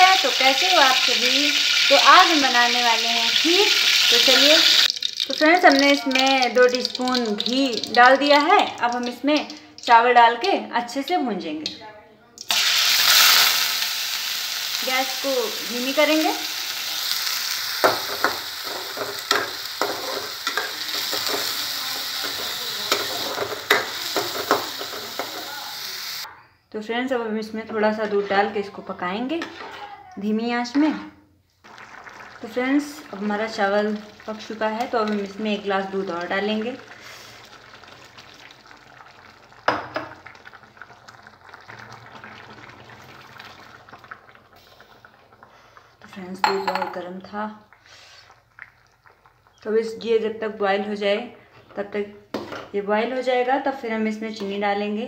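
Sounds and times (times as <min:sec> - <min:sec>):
rice sizzling in pan: 0:00.0 - 0:09.6, 0:12.5 - 0:26.3, 0:31.6 - 0:45.8
milk pouring and splashing: 0:31.6 - 0:35.9, 0:36.6 - 0:46.1, 0:47.9 - 0:49.6.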